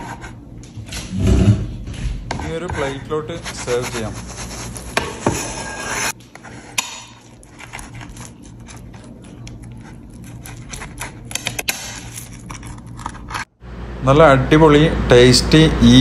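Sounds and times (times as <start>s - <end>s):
pizza cutter crunching crust: 2.4s - 13.5s.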